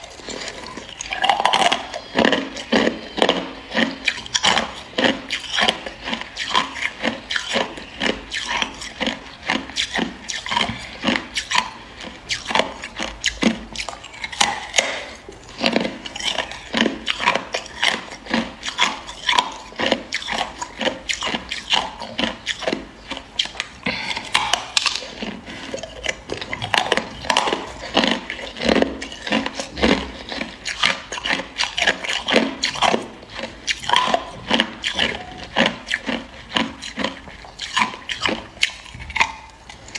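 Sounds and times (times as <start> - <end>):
ice being chewed crunching: 0.0 - 39.9.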